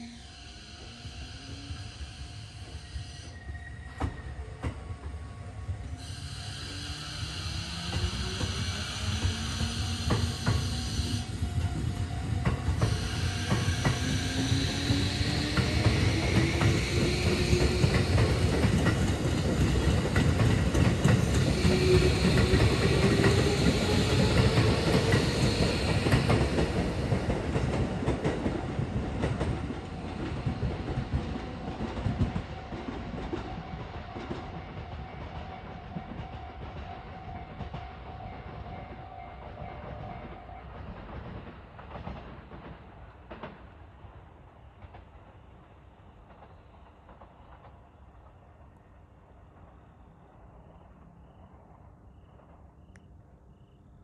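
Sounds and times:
train motor whine rising: 0.0 - 4.8, 5.8 - 28.2.

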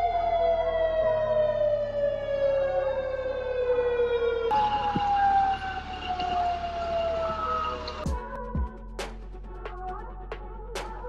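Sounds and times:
warning siren wailing: 0.0 - 8.1.

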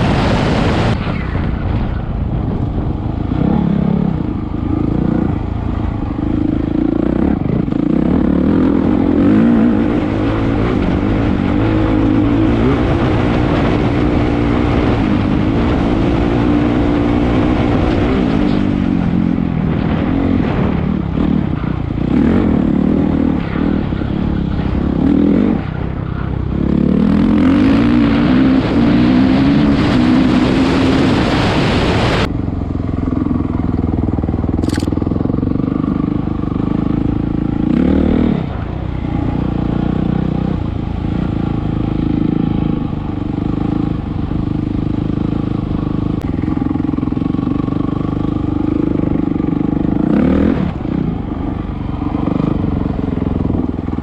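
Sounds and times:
wind rushing over microphone: 0.0 - 54.0
dirt bike engine revving: 3.0 - 32.3, 33.0 - 54.0.

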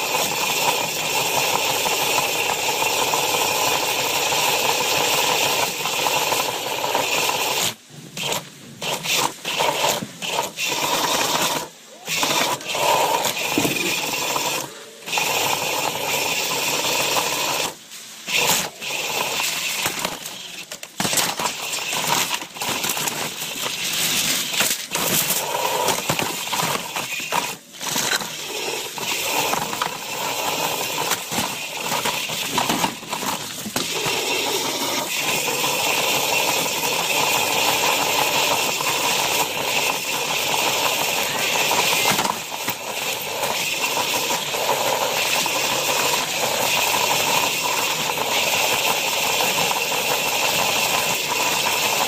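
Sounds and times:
robot drive motors whining: 4.3 - 52.0
metal chassis rattling and scraping: 18.3 - 35.2.

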